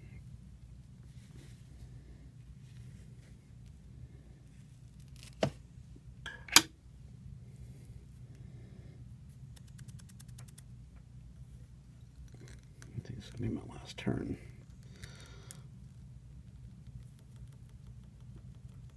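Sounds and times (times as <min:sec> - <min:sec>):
sharp clicks: 0:09.5 - 0:10.7.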